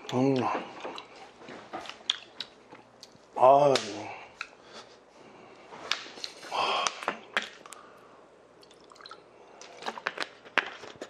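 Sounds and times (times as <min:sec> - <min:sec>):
person drinking: 0:08.6 - 0:10.2.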